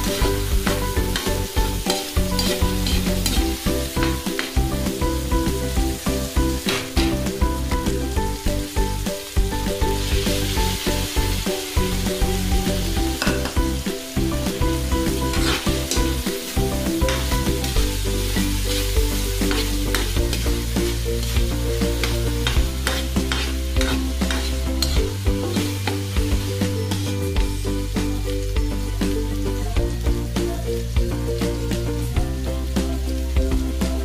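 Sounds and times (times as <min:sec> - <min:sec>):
metal spatula scraping a wok: 0:00.0 - 0:04.6, 0:15.2 - 0:16.2, 0:18.2 - 0:27.3
frying sizzle: 0:00.0 - 0:34.0.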